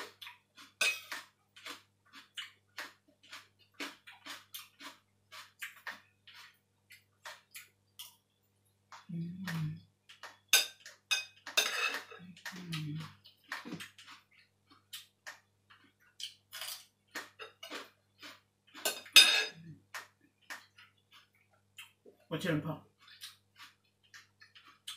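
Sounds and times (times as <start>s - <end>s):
chewing noises: 0.0s - 8.2s, 8.9s - 24.9s
person humming mm: 9.1s - 9.9s, 12.5s - 13.1s
spoon scraping bowl: 10.5s - 12.5s.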